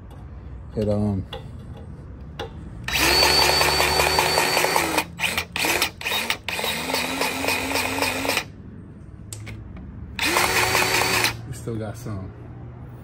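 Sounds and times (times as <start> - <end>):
grease gun motor pumping: 10.2 - 11.4.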